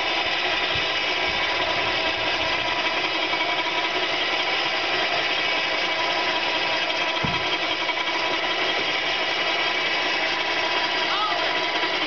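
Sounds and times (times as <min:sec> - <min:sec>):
winch motor running under load: 0:00.0 - 0:12.0
low thump: 0:07.2 - 0:07.5.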